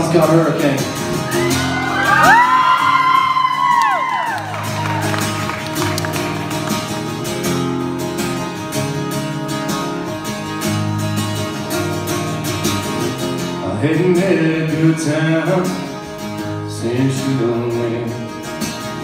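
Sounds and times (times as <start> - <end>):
acoustic guitar strumming: 0.0 - 19.0
crowd whooping: 1.1 - 7.0.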